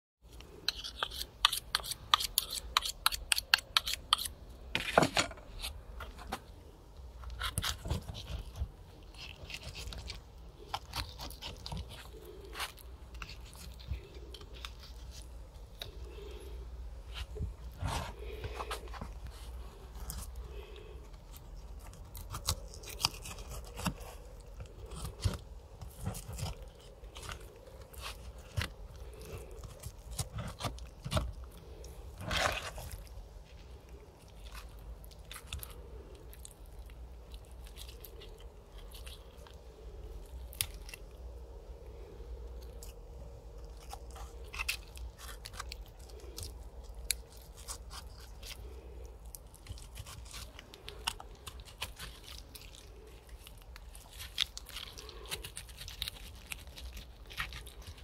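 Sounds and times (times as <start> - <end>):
knife cutting through bone: 0.6 - 5.2.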